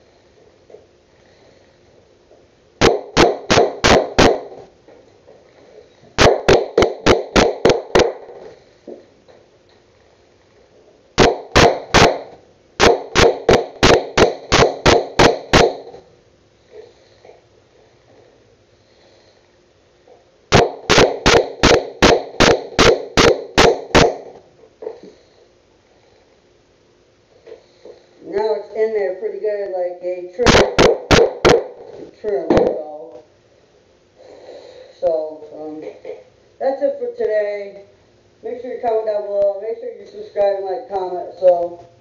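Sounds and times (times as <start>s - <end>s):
hammer driving nail into wood: 20.5s - 24.2s.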